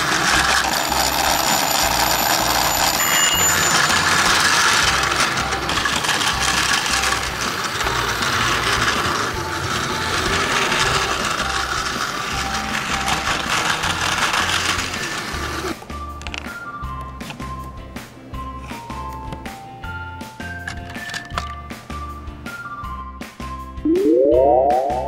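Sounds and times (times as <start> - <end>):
toy train motor whirring: 0.0 - 16.4.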